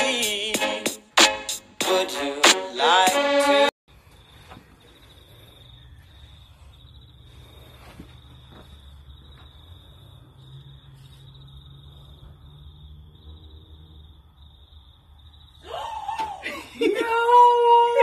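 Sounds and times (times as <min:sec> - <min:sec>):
crickets chirping: 0:03.9 - 0:17.0.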